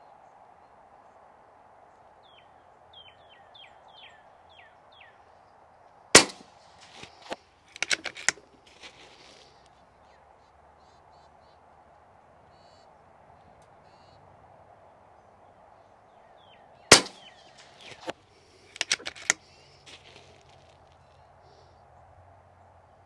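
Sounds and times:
bird chirping: 0.0 - 23.0
quiet clicks: 5.9 - 9.8, 16.9 - 21.2
air rifle shot crack: 6.1 - 8.4, 16.9 - 18.2.

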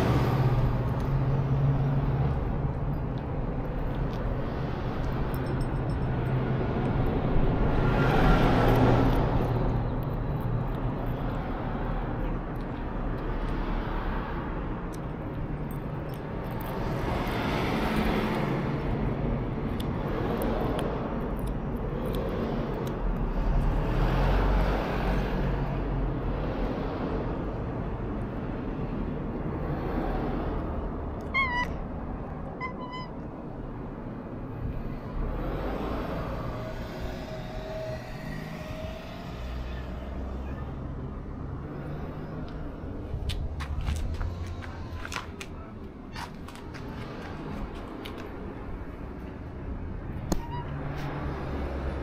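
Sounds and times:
passing traffic rumble: 0.0 - 52.0
cat meowing: 31.2 - 31.8, 32.6 - 33.1.

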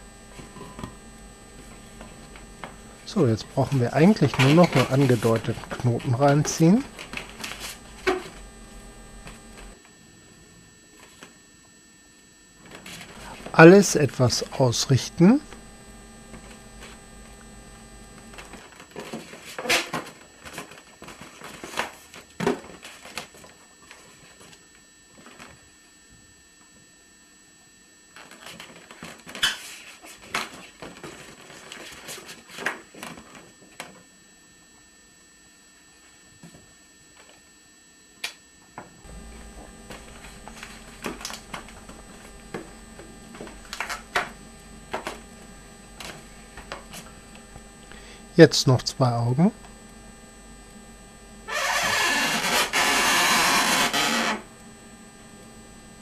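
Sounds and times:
steady mains hum: 0.0 - 56.0
balloons rubbing and squeaking: 51.5 - 54.5.

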